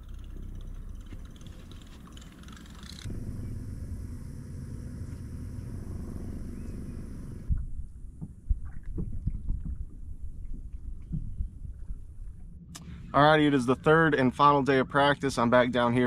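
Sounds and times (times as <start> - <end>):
wind rumble on microphone: 3.0 - 14.2.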